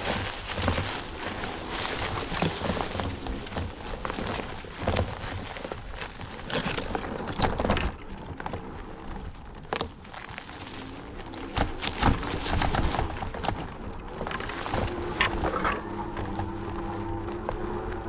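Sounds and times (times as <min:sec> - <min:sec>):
wheelchair rolling over rough ground: 0:00.0 - 0:18.0.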